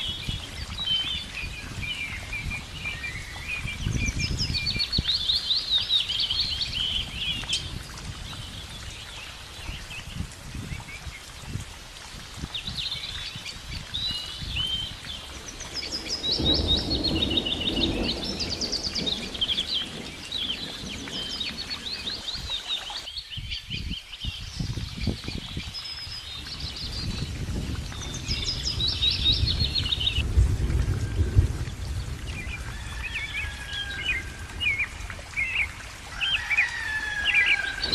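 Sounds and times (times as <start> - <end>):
small songbirds singing: 0.0 - 11.6, 12.4 - 30.2.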